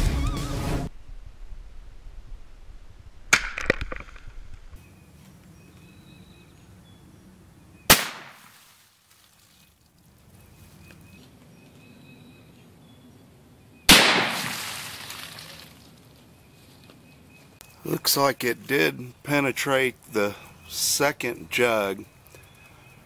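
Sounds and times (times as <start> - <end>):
rifle shots: 7.9 - 8.5, 13.9 - 14.8.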